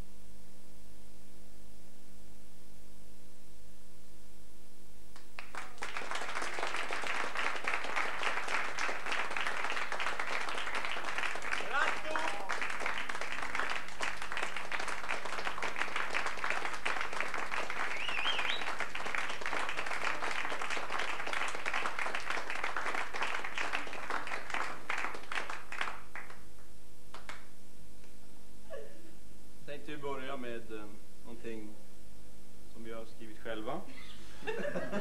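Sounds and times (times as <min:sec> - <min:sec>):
audience applauding: 0:05.2 - 0:27.5.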